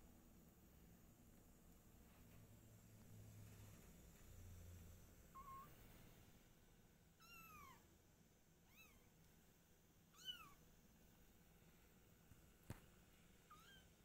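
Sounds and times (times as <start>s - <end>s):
cat meowing: 10.1s - 10.6s, 13.5s - 13.9s.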